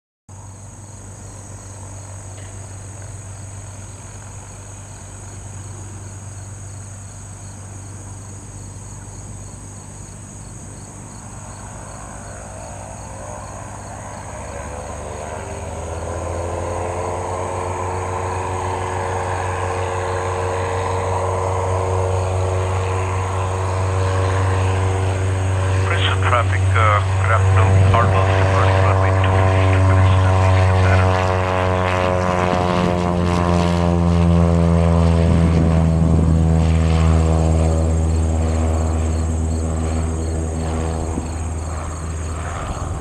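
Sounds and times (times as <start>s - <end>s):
crickets trilling: 0.3s - 31.2s, 35.8s - 43.0s
propeller plane engine drone: 0.3s - 43.0s.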